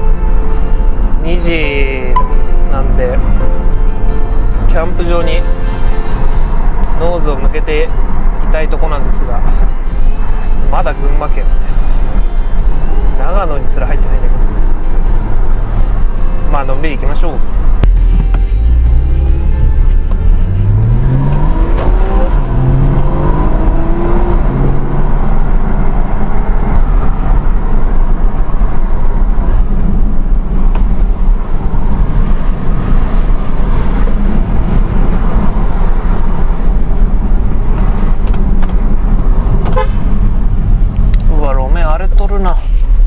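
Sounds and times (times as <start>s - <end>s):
tyre and road noise: 0.0s - 43.0s
car engine accelerating: 13.1s - 43.0s.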